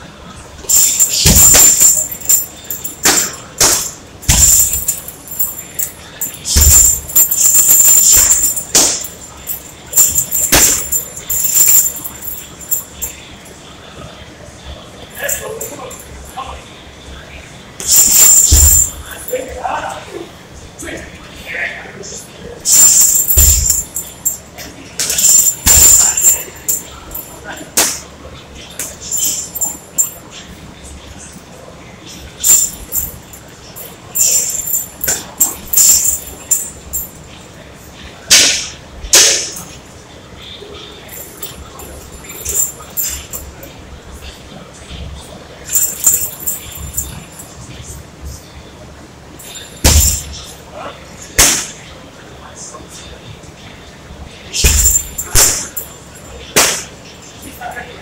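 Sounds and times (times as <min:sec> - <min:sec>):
metal chain jangling: 0:00.6 - 0:13.3, 0:15.1 - 0:16.4, 0:17.8 - 0:19.6, 0:22.6 - 0:27.7, 0:28.8 - 0:30.4, 0:32.4 - 0:37.4, 0:41.0 - 0:43.8, 0:45.6 - 0:47.8, 0:49.4 - 0:50.4, 0:54.6 - 0:56.6.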